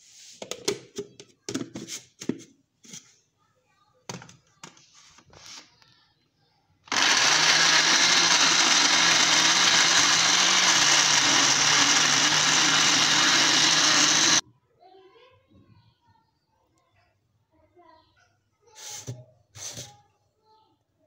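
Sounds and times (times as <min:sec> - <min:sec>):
blender motor running: 0:06.9 - 0:14.4.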